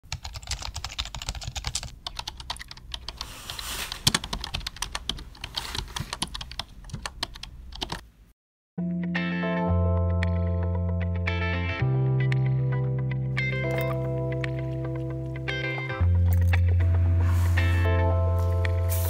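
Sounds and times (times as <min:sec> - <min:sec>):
keyboard typing: 0:00.1 - 0:08.0.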